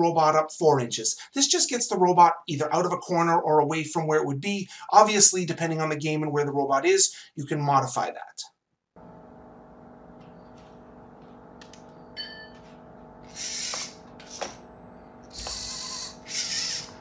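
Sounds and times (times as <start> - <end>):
robot motors whirring: 13.3 - 14.6, 15.3 - 17.0.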